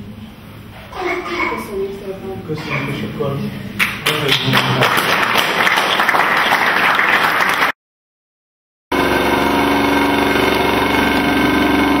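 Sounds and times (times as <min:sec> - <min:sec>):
droning hum of held tones: 0:00.0 - 0:04.7
applause: 0:03.8 - 0:07.8.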